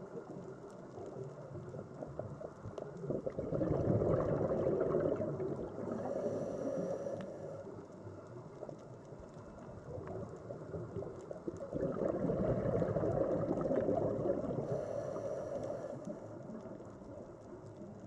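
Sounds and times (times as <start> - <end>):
faint clicks: 0.0 - 3.4, 4.8 - 12.1, 12.7 - 18.0
bubbling gurgling underwater rush: 3.0 - 6.4, 9.8 - 15.1.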